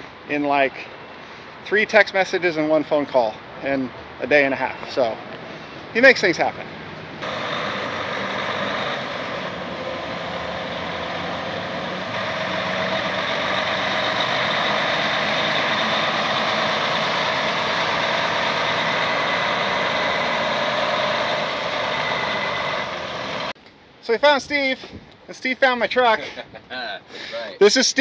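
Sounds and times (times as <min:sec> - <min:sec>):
diesel truck engine running: 0:07.2 - 0:23.6.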